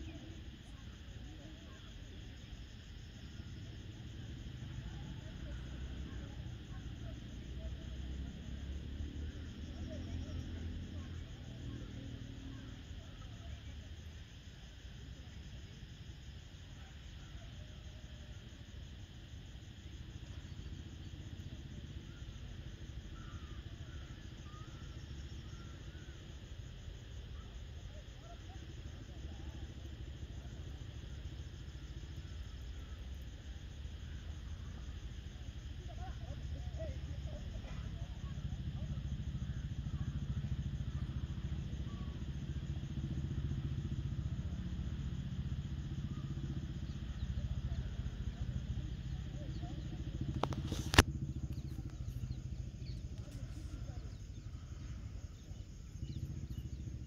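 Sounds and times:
continuous low rumble: 0:00.0 - 0:57.0
insects chirring: 0:00.0 - 0:57.0
engine running at low speed: 0:28.9 - 0:57.0
faint bird chirps: 0:46.0 - 0:57.0.

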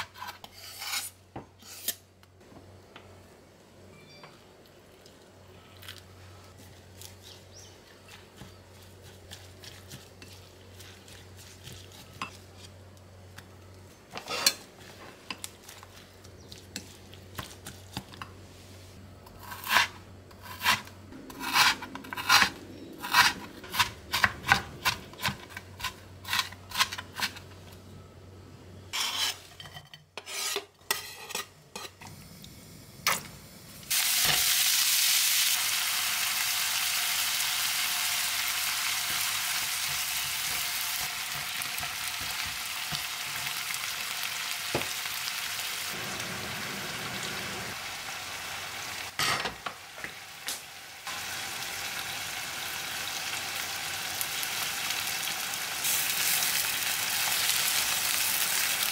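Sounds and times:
meat sizzling in a frying pan: 0:33.8 - 0:49.2, 0:49.8 - 0:58.9.

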